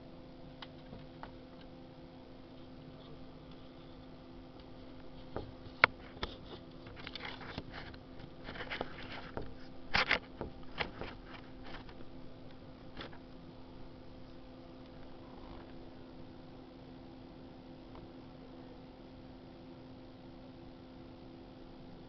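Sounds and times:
steady low hum: 0.0s - 22.0s
handling clicks and rustles: 5.0s - 12.0s.

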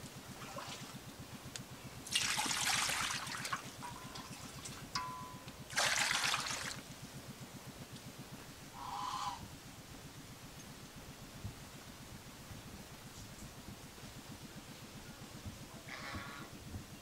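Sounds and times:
water pouring into metal wok: 2.1s - 3.5s.

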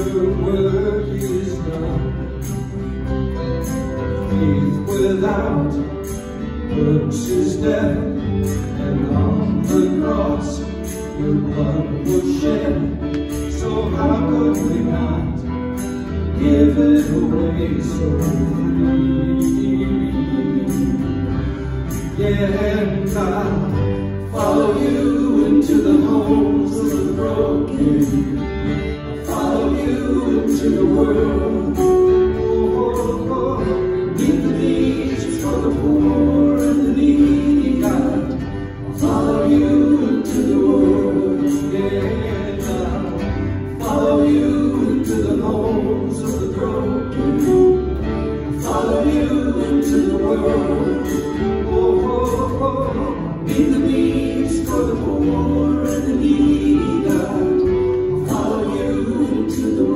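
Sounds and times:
voices singing together: 0.0s - 3.0s, 4.2s - 59.9s
strummed acoustic guitars: 0.0s - 59.9s.

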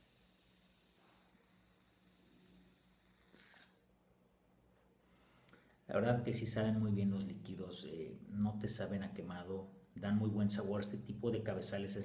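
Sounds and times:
air hissing through vape: 0.0s - 3.8s.

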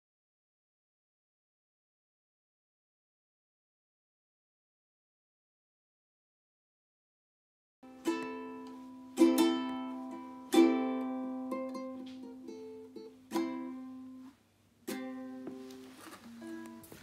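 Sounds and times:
ukulele strummed slowly: 7.8s - 17.0s.

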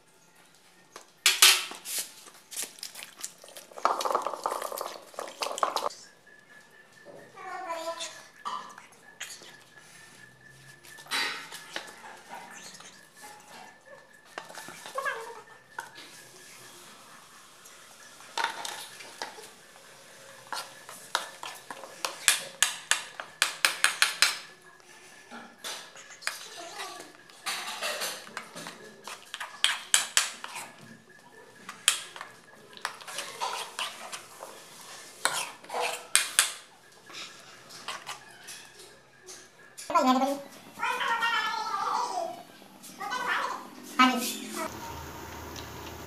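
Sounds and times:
metal spoon scraping a pan: 18.2s - 30.9s, 31.6s - 39.5s.

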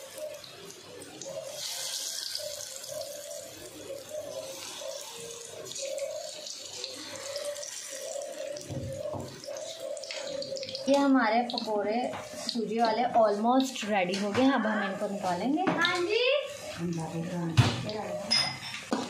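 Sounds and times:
deep-frying in hot oil sizzling: 0.0s - 19.0s.

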